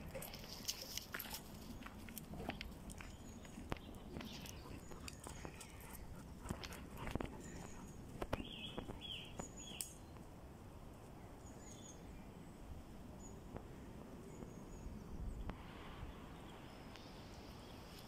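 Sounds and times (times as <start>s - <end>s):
soft steps and clicks: 0.0s - 10.3s
small birds chirping: 0.3s - 10.4s, 11.0s - 18.0s.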